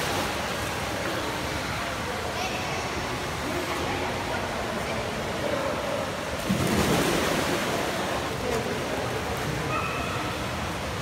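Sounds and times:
churning water: 0.0s - 11.0s
splash into pool: 6.4s - 8.6s.

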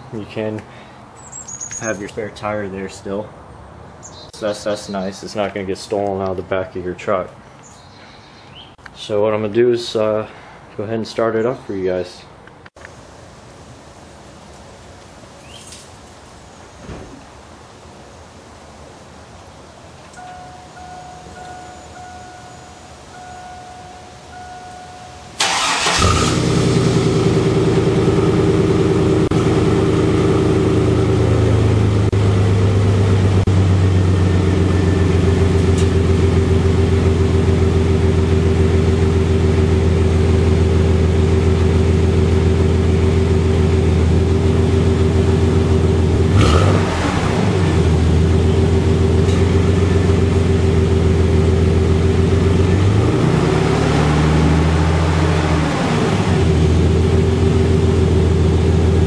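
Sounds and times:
truck engine starting and idling: 25.3s - 59.0s.

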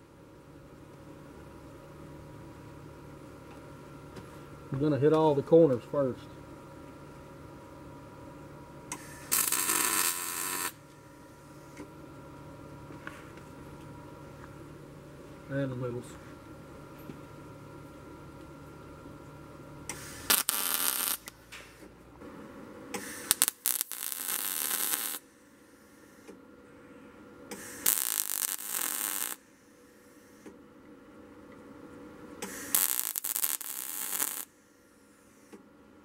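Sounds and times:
welding arc crackling: 8.9s - 10.8s, 19.9s - 21.4s, 23.0s - 25.2s, 27.5s - 29.4s, 32.4s - 34.5s.

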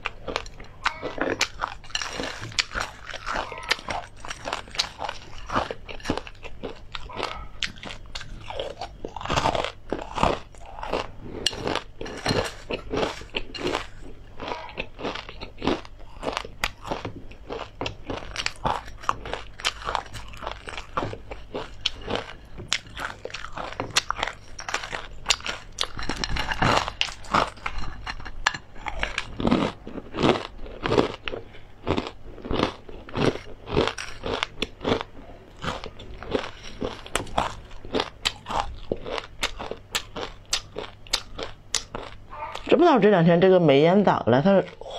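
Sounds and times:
crunchy chewing: 0.0s - 42.7s.

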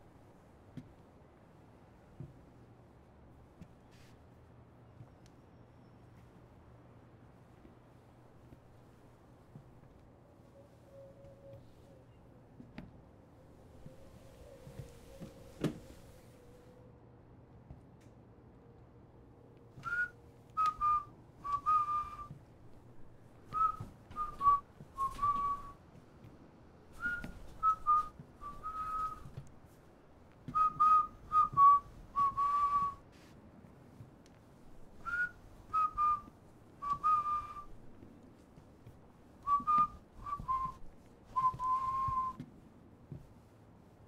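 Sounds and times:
person whistling a tune: 19.8s - 22.3s, 23.5s - 25.8s, 27.0s - 29.3s, 30.5s - 33.0s, 35.0s - 37.7s, 39.5s - 40.8s, 41.4s - 42.4s.

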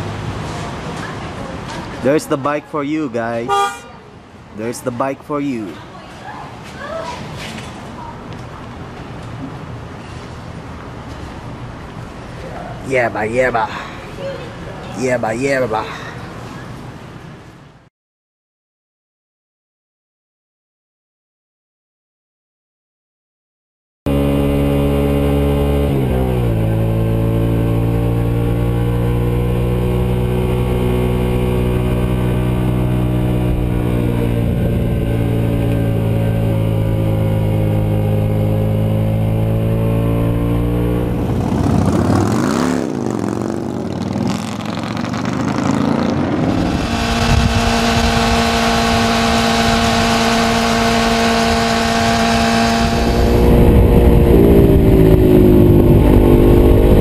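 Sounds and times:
motorcycle engine cruising: 24.1s - 57.0s.

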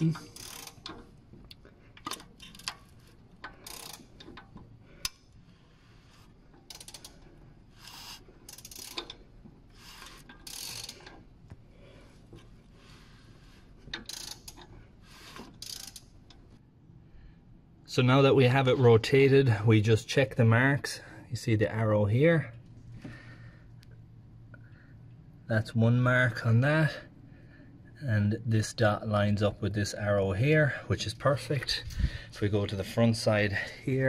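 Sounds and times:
timing chain ratcheting clicks: 0.0s - 1.0s, 3.5s - 5.2s, 6.7s - 7.2s, 7.8s - 9.2s, 9.8s - 11.2s, 13.9s - 14.7s, 15.6s - 16.1s.

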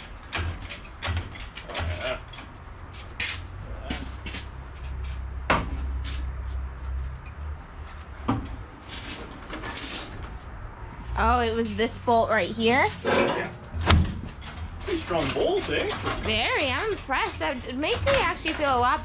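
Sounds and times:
metal clanks from hand tools: 13.0s - 18.8s.

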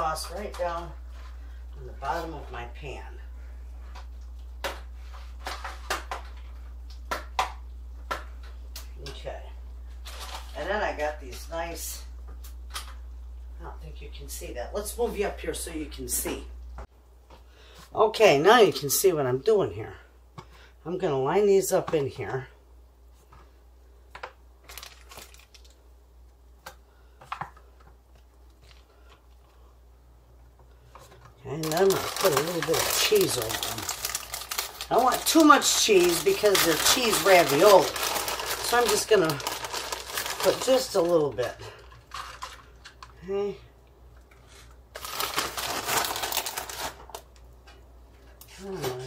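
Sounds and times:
steady low hum: 0.0s - 18.4s
aluminium foil pan crinkling: 10.0s - 11.1s, 24.2s - 25.8s, 30.9s - 43.2s, 44.5s - 49.0s.

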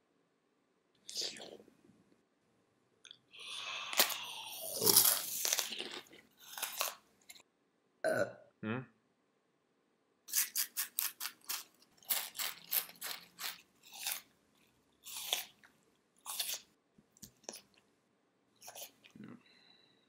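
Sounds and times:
crunchy chewing: 3.4s - 7.4s, 10.3s - 17.8s, 18.6s - 19.2s.

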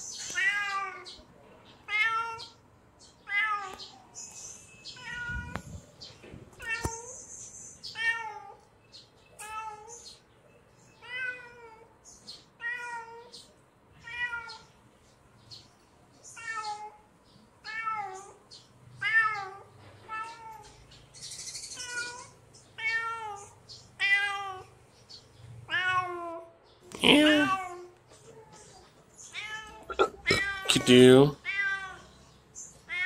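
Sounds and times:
kitten meowing: 29.3s - 32.0s.

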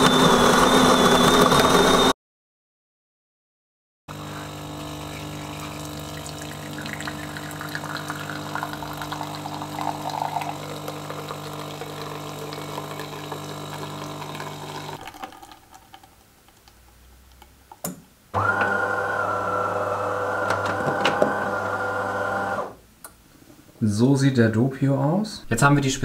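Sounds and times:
coffee machine pump humming: 4.1s - 16.1s, 18.4s - 22.8s
coffee streaming into glass: 4.6s - 16.8s.

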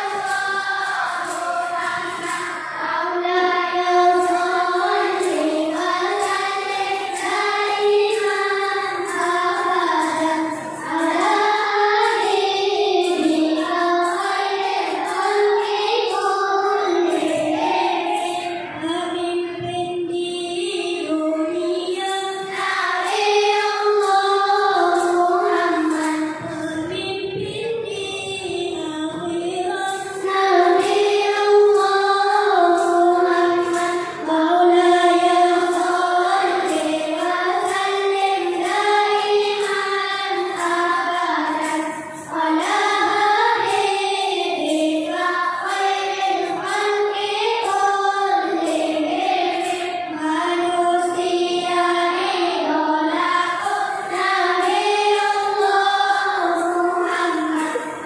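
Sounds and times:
children's choir singing: 0.0s - 58.0s.

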